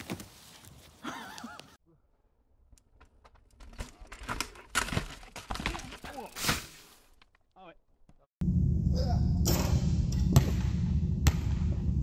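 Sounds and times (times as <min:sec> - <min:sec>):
bike crashing onto rocks: 0:03.4 - 0:07.4.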